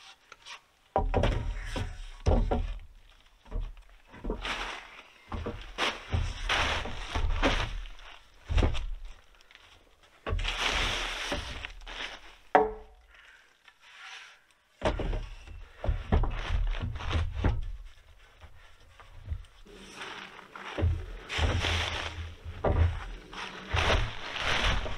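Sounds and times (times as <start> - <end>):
wooden poles knocking together: 0.9 - 9.3, 10.1 - 13.2, 14.8 - 24.9
poles scraping: 15.0 - 24.9.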